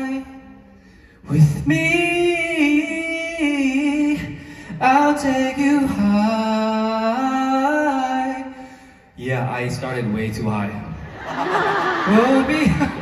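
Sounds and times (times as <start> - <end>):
man singing unaccompanied: 1.3 - 8.5
man talking: 9.2 - 11.0, 12.0 - 13.0.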